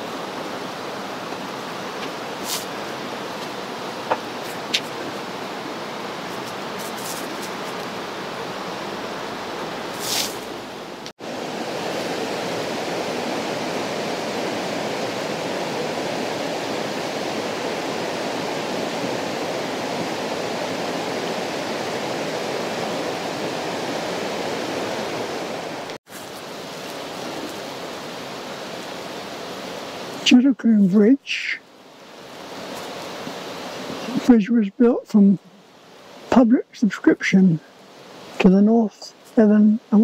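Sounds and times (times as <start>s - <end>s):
river water rushing over rocks: 0.0s - 30.4s, 31.6s - 34.3s
brief hiss: 2.4s - 2.7s, 9.9s - 10.5s.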